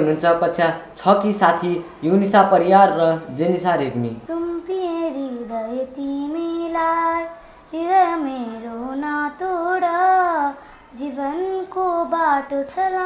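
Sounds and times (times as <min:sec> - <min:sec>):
girls singing slow song: 0:04.2 - 0:13.0.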